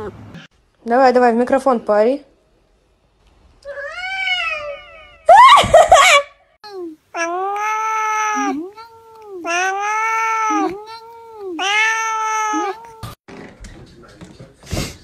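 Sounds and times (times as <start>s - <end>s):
cat meowing: 7.2s - 13.2s.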